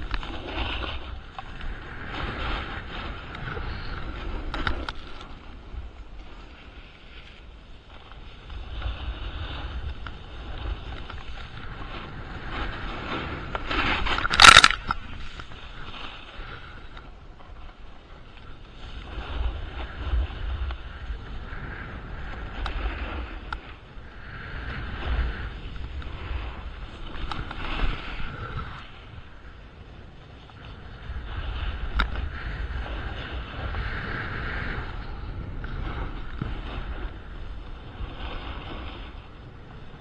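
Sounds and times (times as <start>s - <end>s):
wind rumbling on microphone: 0.0s - 40.0s
ski edges scraping snow: 0.2s - 5.4s.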